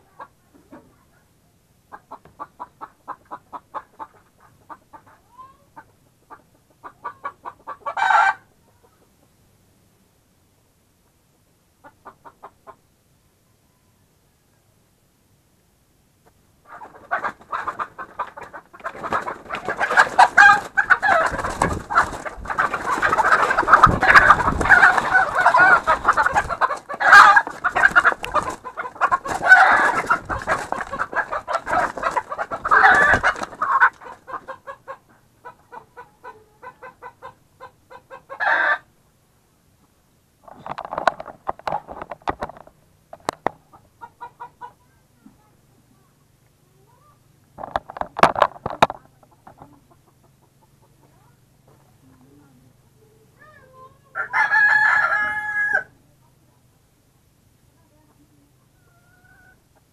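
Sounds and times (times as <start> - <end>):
chicken squawking: 1.9 - 9.0, 16.6 - 38.9, 58.8 - 59.6
chicken clucking: 1.9 - 9.4, 11.0 - 12.9, 16.2 - 38.9, 40.4 - 45.4, 47.6 - 56.0, 58.1 - 59.9.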